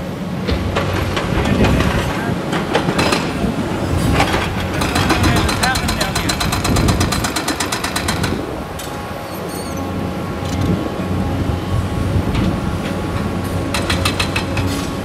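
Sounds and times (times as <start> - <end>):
rapid metallic clatter: 4.1 - 9.0.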